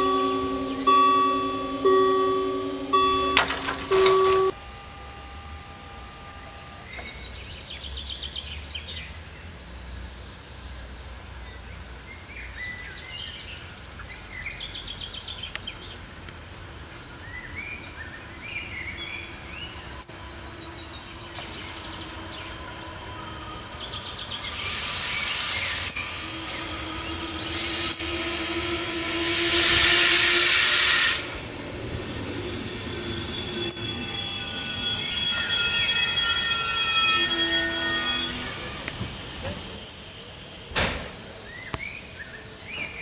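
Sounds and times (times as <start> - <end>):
level-crossing bell ringing: 0.0 - 5.6, 33.1 - 38.9
train wheels hissing on rails: 20.9 - 43.0
birds chirping: 31.3 - 43.0.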